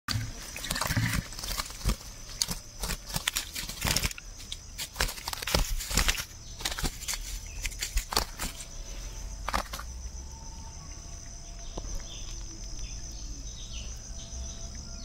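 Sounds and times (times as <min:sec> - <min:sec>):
fish flopping on grass: 0:00.1 - 0:08.8, 0:09.4 - 0:09.9
high insect trill: 0:00.1 - 0:15.0.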